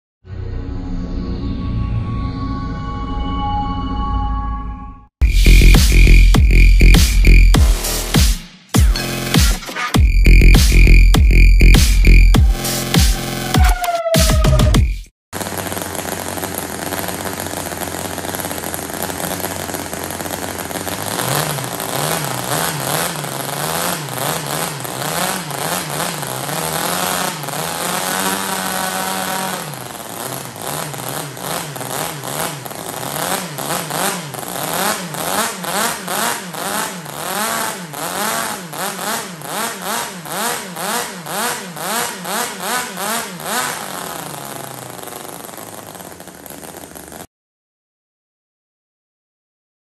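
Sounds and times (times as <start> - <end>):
model rotary engine revving: 15.4 - 47.3.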